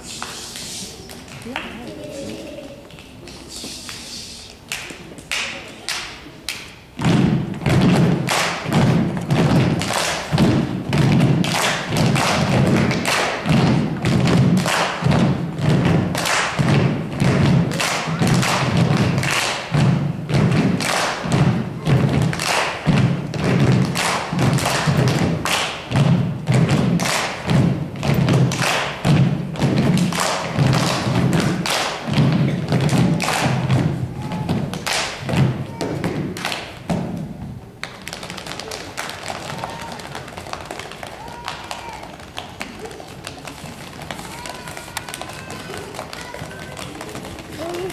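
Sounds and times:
heavy rhythmic thumps: 6.9 - 38.1.

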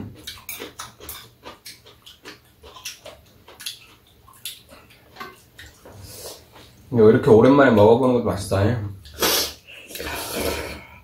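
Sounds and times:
slurping and chewing noodles: 0.1 - 6.7, 9.0 - 11.0.

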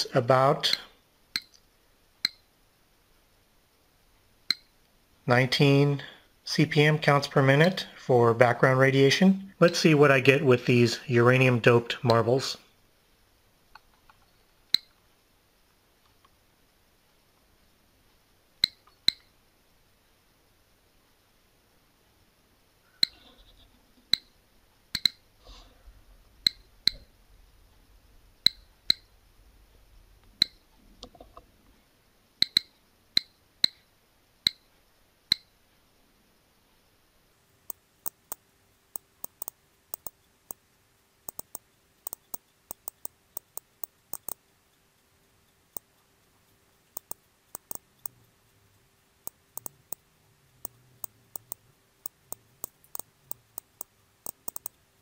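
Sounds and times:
geiger counter clicking: 0.6 - 1.6, 2.2 - 2.5, 4.5 - 4.8, 13.8 - 15.0, 18.6 - 19.3, 24.1 - 25.3, 26.4 - 27.1, 28.4 - 29.1, 30.3 - 30.8, 32.4 - 33.8, 34.4 - 34.7, 35.3 - 35.6, 37.7 - 40.6, 41.2 - 44.5, 45.5 - 46.1, 46.9 - 48.4, 49.2 - 54.8.

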